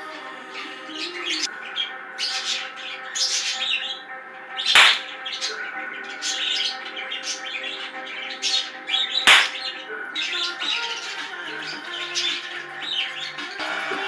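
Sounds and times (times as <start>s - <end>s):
bird-like chirps and squawks: 1.0s - 11.2s
sharp bang: 4.8s - 5.0s, 9.3s - 9.6s.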